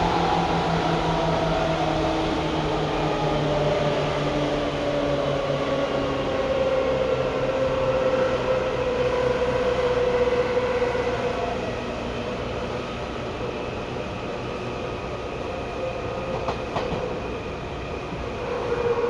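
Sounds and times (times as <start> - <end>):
electric train motor whine: 0.0 - 19.0
train rumble: 0.0 - 19.0.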